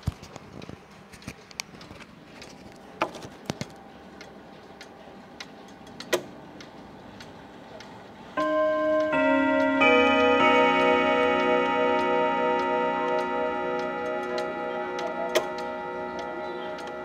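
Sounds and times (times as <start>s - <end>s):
clicks and light knocks: 0.0s - 17.0s
clock chime gongs ringing: 8.3s - 17.0s.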